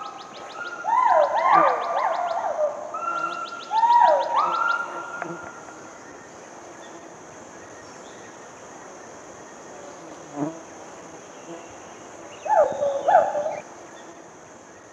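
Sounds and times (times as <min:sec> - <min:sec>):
high-pitched insect drone: 0:00.0 - 0:09.8.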